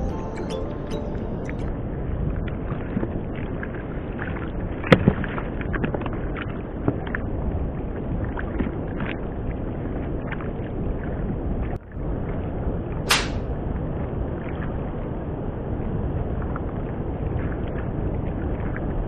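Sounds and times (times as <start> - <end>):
wind and waves: 0.0 - 19.0
short sharp hiss: 13.1 - 13.4.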